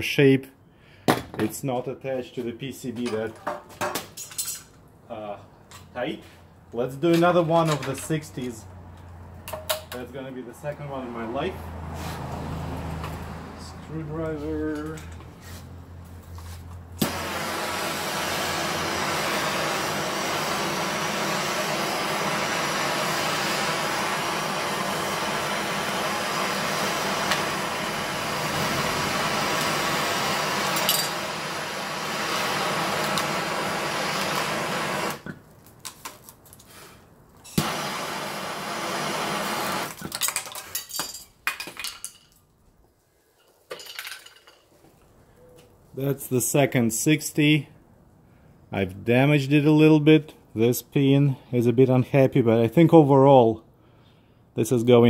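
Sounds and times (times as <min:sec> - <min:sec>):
heat gun blowing: 0:17.0 - 0:35.3, 0:36.7 - 0:40.1.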